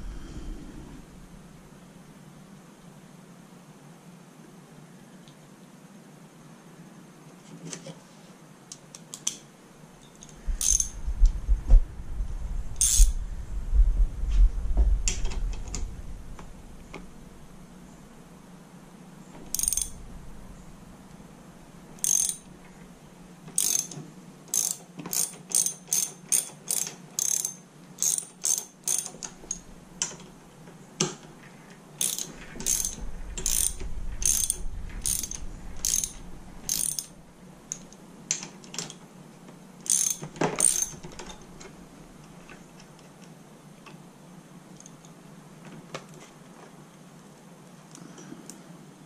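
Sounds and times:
ratchet wrench clicking: 0:10.2 - 0:11.0, 0:12.8 - 0:13.2, 0:19.5 - 0:20.0, 0:22.0 - 0:22.5, 0:23.5 - 0:29.6, 0:32.0 - 0:37.1, 0:39.8 - 0:41.4.

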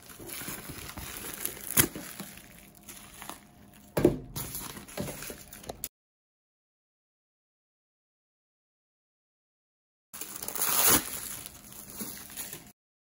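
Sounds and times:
plastic packaging crinkling: 0:00.0 - 0:05.9, 0:10.2 - 0:12.8.

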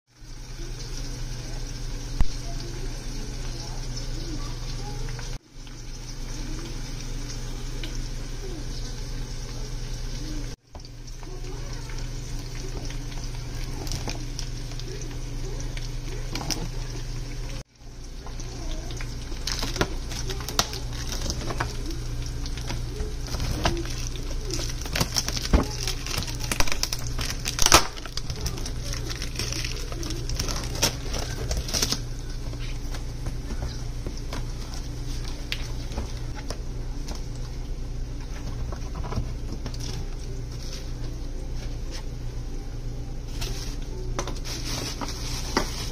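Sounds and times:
steady low hum: 0:01.2 - 0:45.9.

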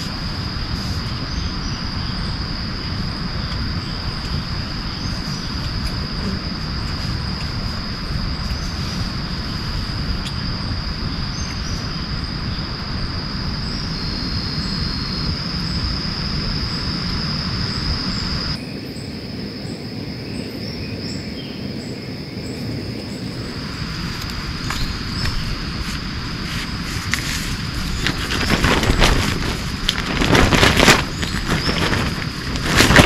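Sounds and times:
insects droning: 0:00.0 - 0:33.0
steady rushing noise: 0:21.0 - 0:33.0.

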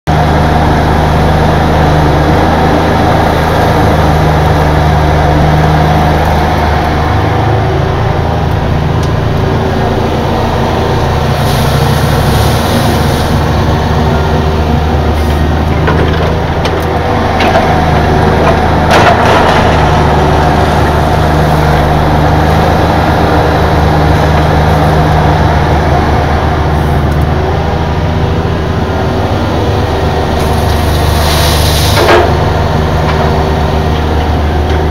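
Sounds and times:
excavator diesel engine running: 0:00.1 - 0:34.9.

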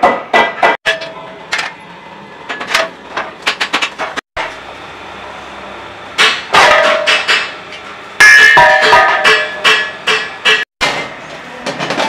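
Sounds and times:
sheet metal clanging: 0:08.2 - 0:12.0.

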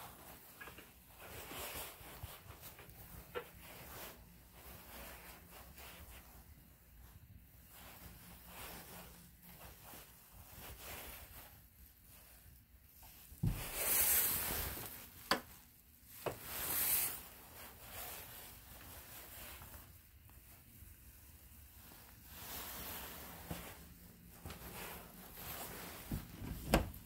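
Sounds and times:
wooden door thump: 0:26.4 - 0:27.0.

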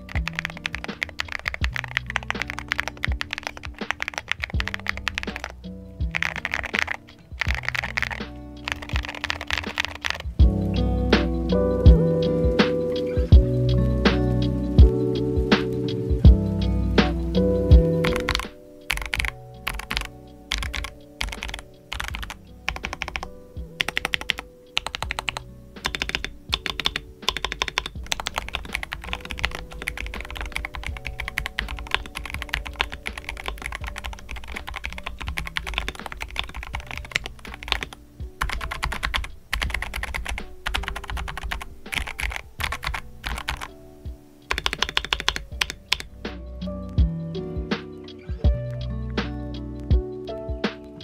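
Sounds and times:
mechanical keyboard keystrokes: 0:00.0 - 0:05.5, 0:06.1 - 0:10.3, 0:18.0 - 0:43.7, 0:44.5 - 0:46.1
background music: 0:00.0 - 0:51.0.

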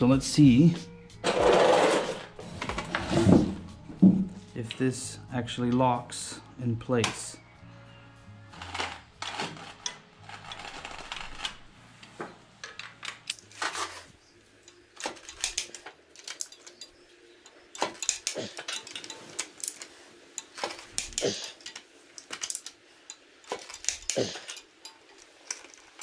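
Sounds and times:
wrench and socket clicking: 0:14.6 - 0:16.9, 0:17.8 - 0:26.0.

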